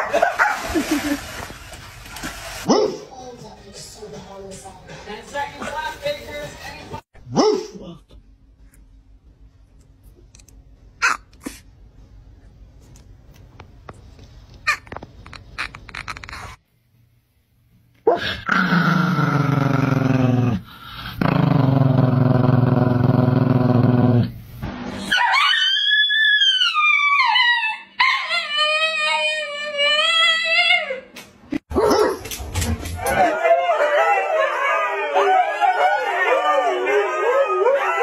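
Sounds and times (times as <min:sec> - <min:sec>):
dog howling high-pitched: 0:25.1 - 0:31.1, 0:33.0 - 0:38.0.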